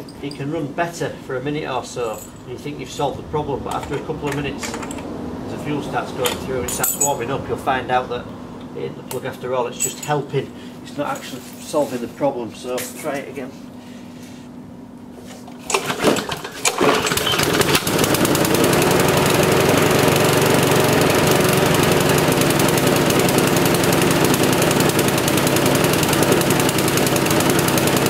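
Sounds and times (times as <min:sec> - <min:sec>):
lawnmower engine running: 0:15.5 - 0:28.0
lawnmower pull-start: 0:15.5 - 0:28.0.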